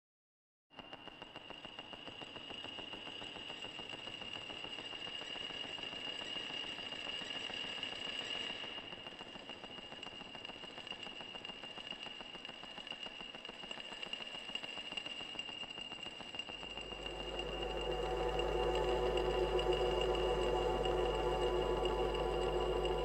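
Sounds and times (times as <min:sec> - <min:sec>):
high electronic whine: 0:16.4 - 0:23.0
deep low drone: 0:16.6 - 0:23.0.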